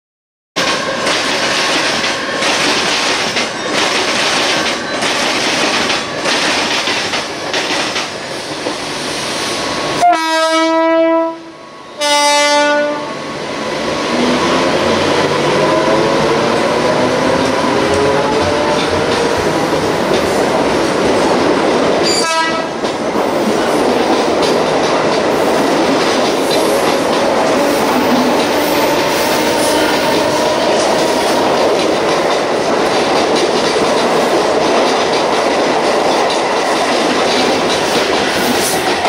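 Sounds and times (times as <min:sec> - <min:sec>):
rushing train rumble: 0:00.6 - 0:39.0
train horn blasts: 0:10.0 - 0:13.2, 0:22.1 - 0:22.8, 0:27.6 - 0:31.4.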